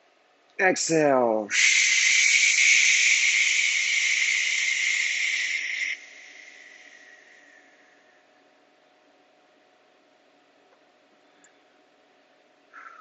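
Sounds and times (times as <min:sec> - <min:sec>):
faint steady hum: 0:00.0 - 0:13.0
person hissing breath: 0:01.5 - 0:08.0, 0:12.8 - 0:13.0.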